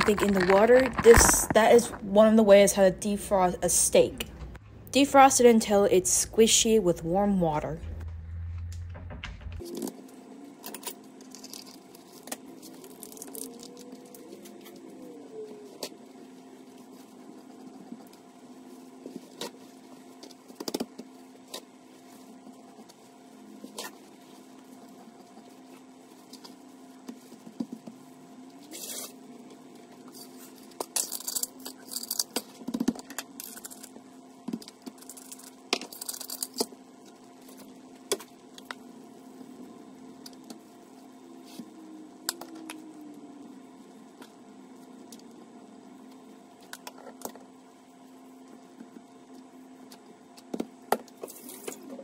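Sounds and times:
spice containers clicking and rattling: 0.0s - 1.6s
steady low hum: 0.0s - 52.0s.

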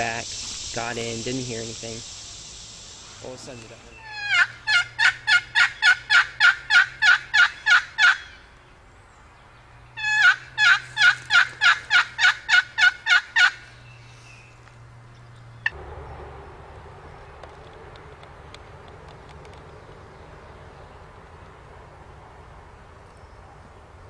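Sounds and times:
turkey yelping: 4.0s - 8.4s, 10.0s - 13.7s.

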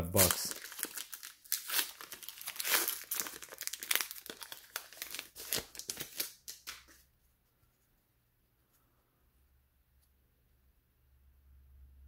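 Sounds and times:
wrapper tearing and crinkling: 0.0s - 7.0s.

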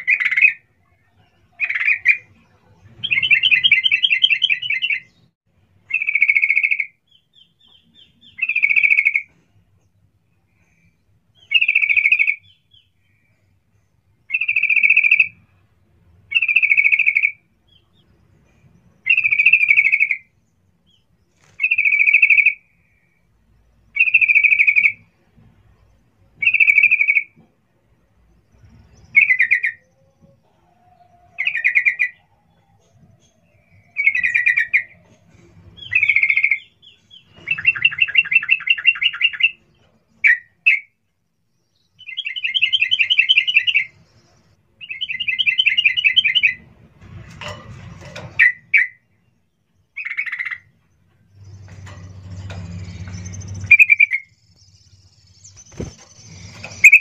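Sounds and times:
bird rattling trills: 51.4s - 57.0s.

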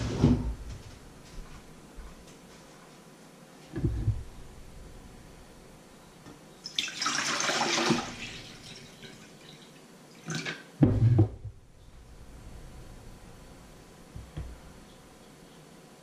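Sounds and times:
water pouring into a bowl: 6.7s - 10.5s.

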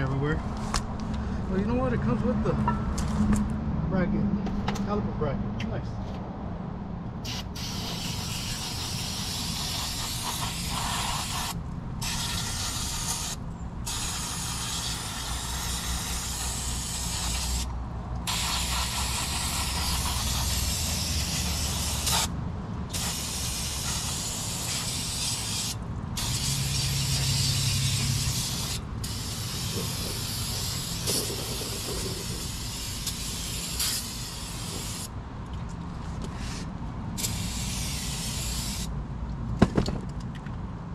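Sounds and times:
aerosol can spraying: 7.2s - 17.7s, 18.3s - 22.3s, 22.9s - 35.1s, 37.2s - 38.9s.

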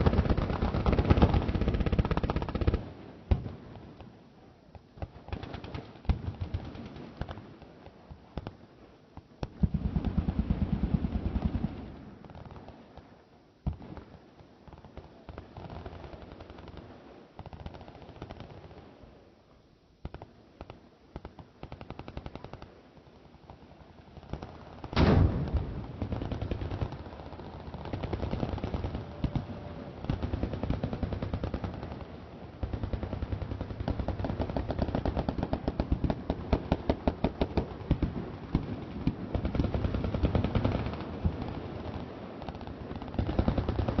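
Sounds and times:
machine gun fire: 24.9s - 41.6s
loud boom: 25.0s - 26.0s.

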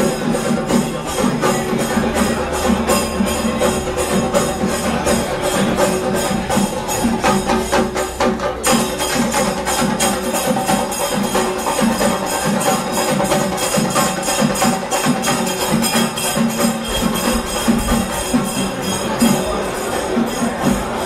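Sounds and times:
fast percussion beat: 0.0s - 21.0s
jingling: 0.0s - 21.0s.

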